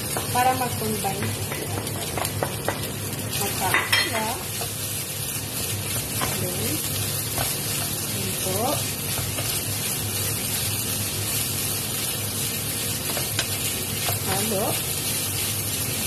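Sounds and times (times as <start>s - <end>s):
food sizzling in a wok: 0.0s - 16.0s.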